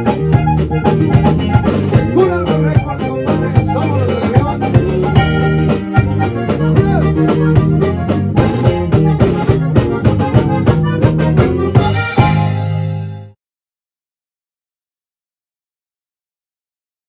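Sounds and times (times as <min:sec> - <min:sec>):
steady drum beat: 0:00.0 - 0:13.1
accordion melody: 0:00.0 - 0:13.4
electric bass: 0:00.0 - 0:13.4
guitar: 0:00.0 - 0:13.4.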